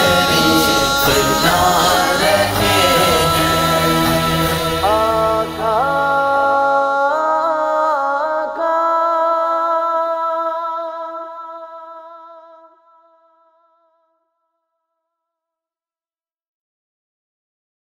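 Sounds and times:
voices humming a held note: 0.0 - 5.8.

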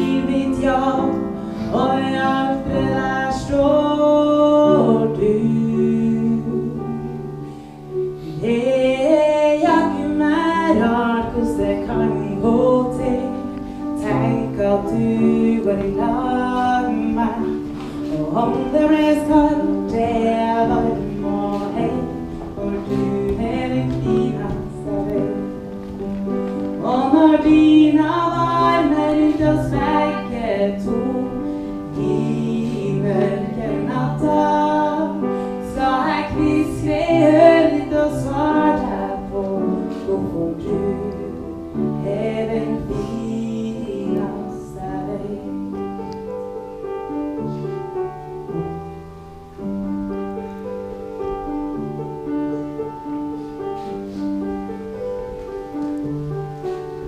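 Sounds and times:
woman singing into microphone: 0.0 - 7.2, 8.2 - 25.8, 26.7 - 45.8
sustained keyboard accompaniment: 0.0 - 57.0.

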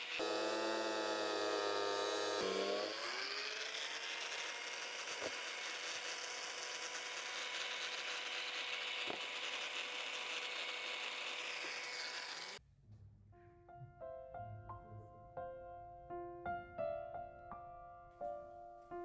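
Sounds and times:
angle grinder cutting plywood: 0.0 - 12.6.

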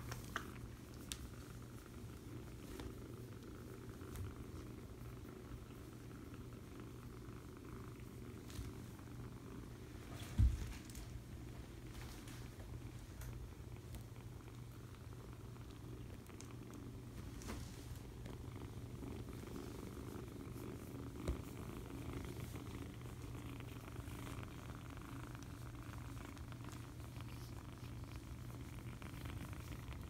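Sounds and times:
kitten purring: 0.0 - 30.0.

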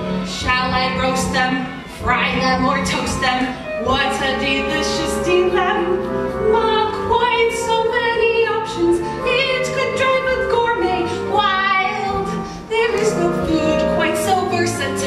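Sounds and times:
instrumental accompaniment: 0.0 - 15.0.

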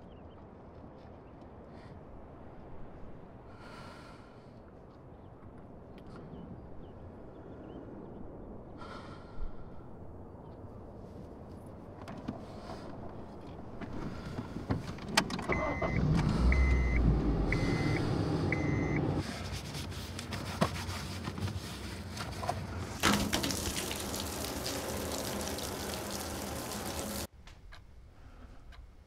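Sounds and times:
low engine rumble: 12.5 - 20.2
car warning chime beeping: 15.5 - 19.2.

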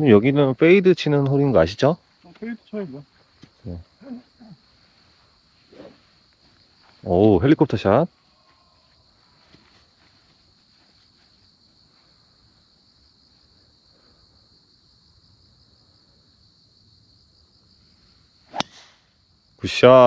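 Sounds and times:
golf club striking ball: 18.5 - 19.0.

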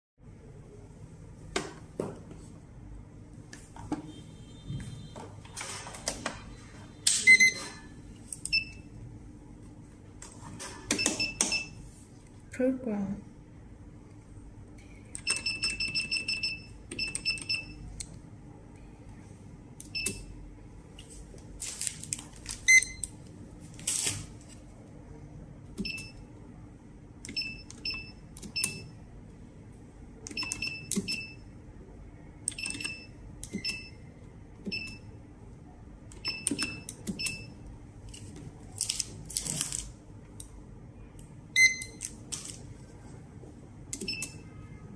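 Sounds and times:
cash register keypad beeping: 4.8 - 7.9, 10.8 - 11.8, 15.1 - 17.9, 19.9 - 20.3, 22.6 - 23.2, 25.8 - 26.3, 27.3 - 29.0, 30.3 - 31.5, 32.5 - 34.1, 34.7 - 35.2, 36.2 - 37.6, 41.6 - 42.2, 44.0 - 44.6
barcode scanner beep: 7.1 - 7.8, 8.5 - 8.9, 10.9 - 11.8, 15.2 - 17.9, 19.9 - 20.3, 22.6 - 23.1, 25.8 - 26.2, 27.3 - 29.0, 30.3 - 31.5, 32.5 - 34.1, 34.7 - 35.1, 36.2 - 37.6, 41.6 - 42.1, 44.0 - 44.6
rustling noises: 21.0 - 22.7.

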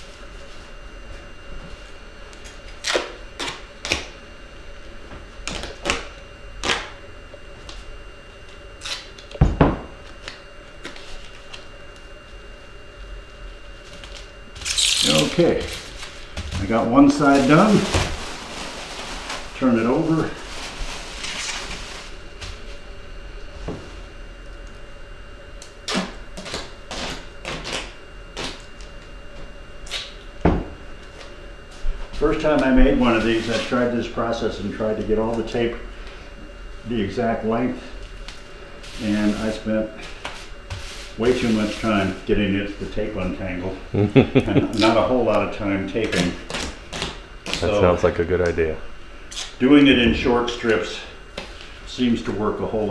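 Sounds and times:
duct tape ripping: 2.4 - 4.1, 8.8 - 9.2, 14.1 - 15.3, 25.8 - 28.7, 46.1 - 47.8
duct tape ripping off roll: 2.7 - 4.1
bubble wrap crinkling: 14.0 - 22.5.

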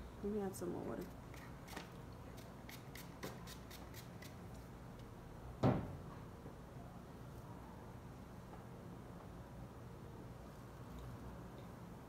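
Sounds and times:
spray bottle spritzing water: 1.4 - 4.4
loud knock: 5.6 - 6.0.

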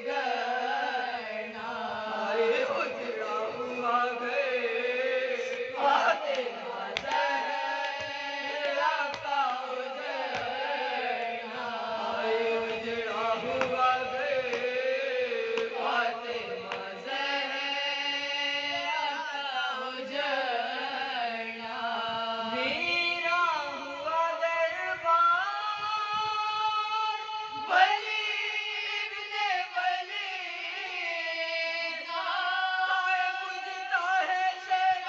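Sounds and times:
women chanting in unison: 0.0 - 22.9.

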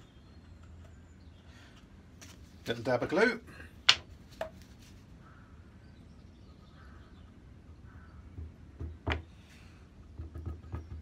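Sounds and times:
faint handling noises: 0.4 - 3.2, 3.8 - 5.2.

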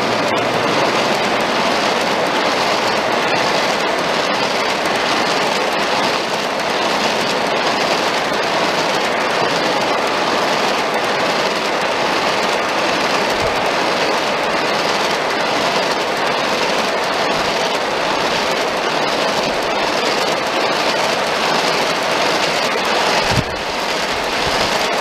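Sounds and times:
model train wheels rolling on track: 0.0 - 25.0.

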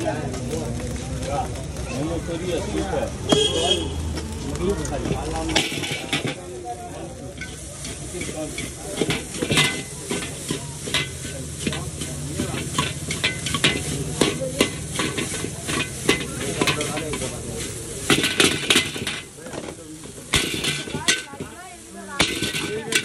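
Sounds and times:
frying sizzle: 0.0 - 23.0
metal spatula clanking on wok: 5.0 - 23.0.

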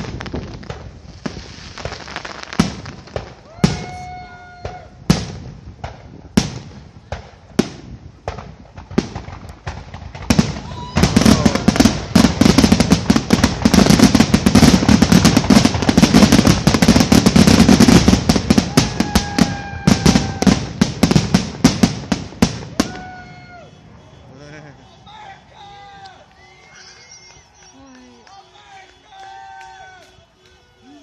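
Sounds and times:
firework shells bursting: 5.1 - 24.2.

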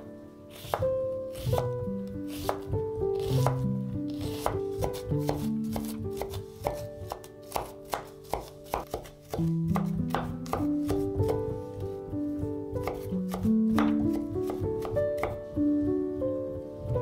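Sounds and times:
melodic background music: 0.0 - 17.0
knife chopping food: 0.5 - 1.7, 2.3 - 11.4, 12.8 - 15.4.

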